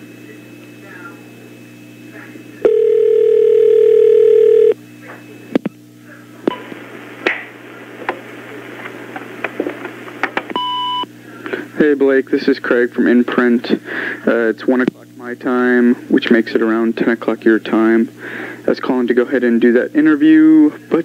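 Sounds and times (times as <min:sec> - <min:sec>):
steady line hum: 0:00.0 - 0:21.0
answering machine beep: 0:02.6 - 0:04.8, 0:10.5 - 0:11.1
telephone ringback tone: 0:02.6 - 0:04.8.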